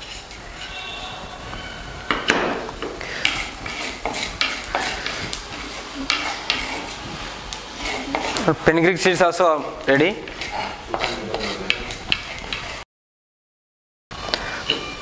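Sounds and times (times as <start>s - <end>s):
wooden spatula scraping seeds in a pan: 0.0s - 1.1s, 2.7s - 12.8s.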